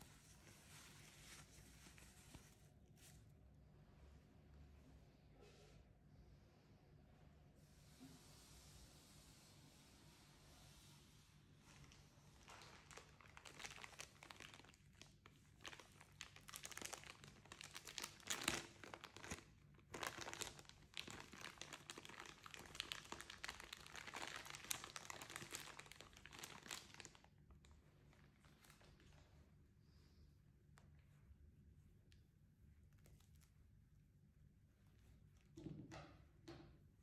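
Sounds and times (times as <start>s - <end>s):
packaging crinkling and rustling: 11.8s - 29.3s.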